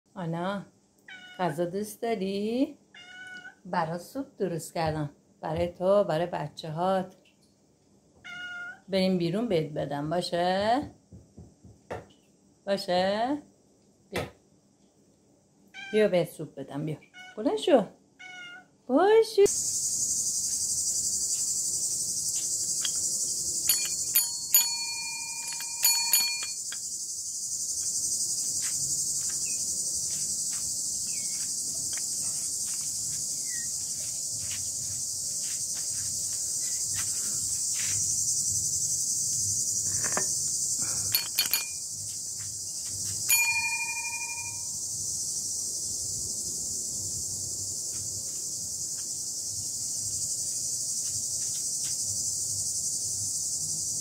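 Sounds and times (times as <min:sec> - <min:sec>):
insect chorus: 0:16.9 - 0:54.0
sharp metallic clinks: 0:22.6 - 0:27.0, 0:40.0 - 0:41.9, 0:43.3 - 0:44.8.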